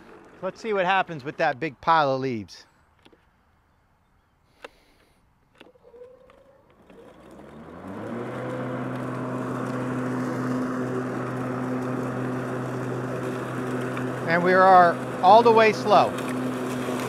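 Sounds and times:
electric mower motor hum: 0.0s - 0.6s, 5.6s - 17.0s.

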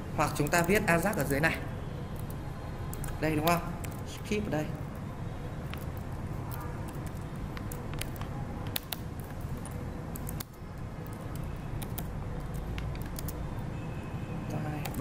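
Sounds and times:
keyboard typing: 2.1s - 4.3s, 5.6s - 13.8s, 14.6s - 15.0s.

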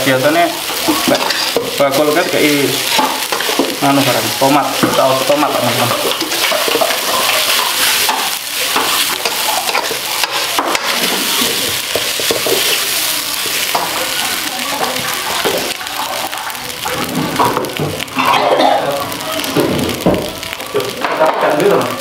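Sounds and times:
rice sizzling in a wok: 0.0s - 22.0s
metal spatula scraping a wok: 0.7s - 13.8s.

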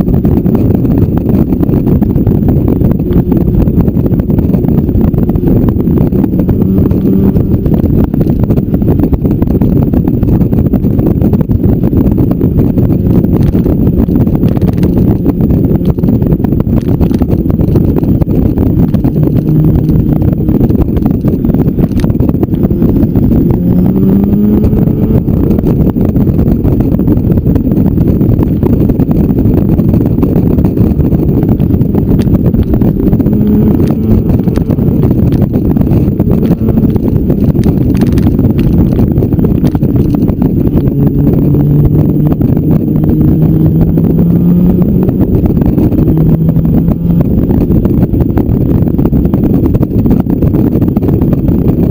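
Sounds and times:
motorcycle engine: 0.0s - 51.9s
wind rumble over microphone: 0.0s - 51.9s.

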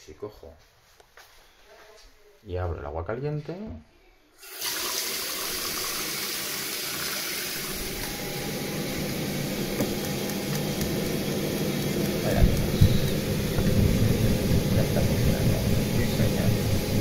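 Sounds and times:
water running into metal sink: 4.4s - 8.2s.

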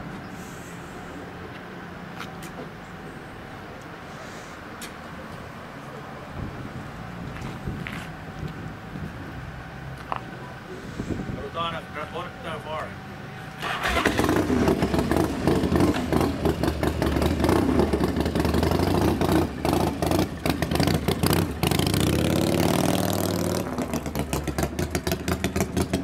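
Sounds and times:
motorcycle engine running: 13.6s - 26.0s.

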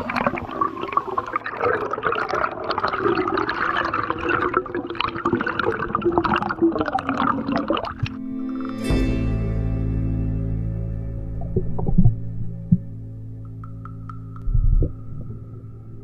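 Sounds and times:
underwater bubbling: 0.0s - 8.2s, 11.4s - 16.0s.

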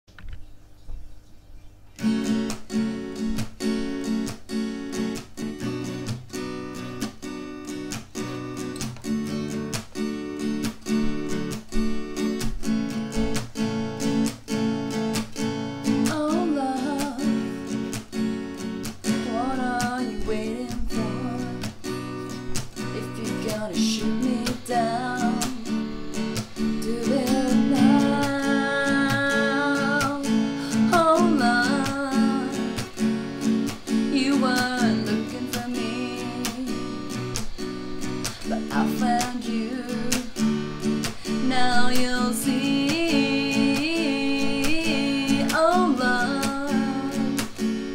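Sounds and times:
acoustic guitar strummed: 2.0s - 47.9s
person singing slow melody: 22.8s - 33.0s, 33.7s - 47.9s.

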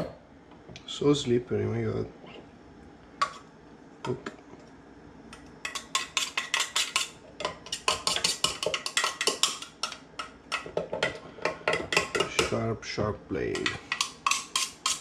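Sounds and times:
metal spoon scraping and clinking: 5.6s - 10.0s, 13.5s - 15.0s.

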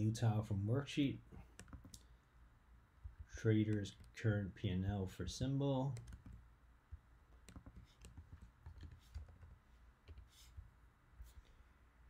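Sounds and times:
keyboard and mouse clicks: 1.5s - 2.1s, 3.0s - 4.2s, 5.9s - 10.4s.

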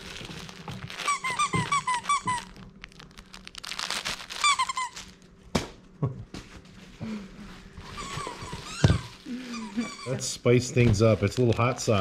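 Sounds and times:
dog toy squeaks: 1.0s - 2.6s, 4.4s - 5.1s.

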